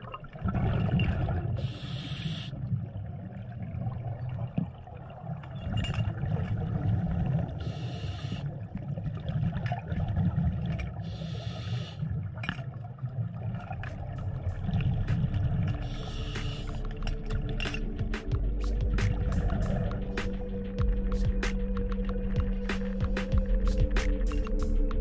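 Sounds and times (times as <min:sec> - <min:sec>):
low rumble of water: 0:00.0 - 0:25.0.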